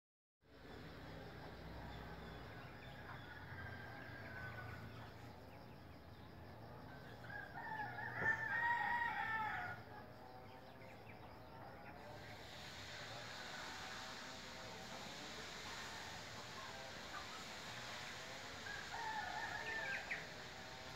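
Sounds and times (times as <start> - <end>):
rooster crowing: 2.2 - 5.3, 6.9 - 10.0, 15.7 - 20.9.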